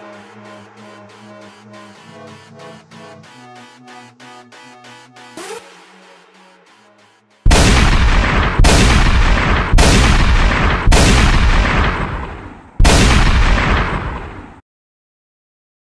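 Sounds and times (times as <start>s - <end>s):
deep impact hits: 7.5s - 14.5s.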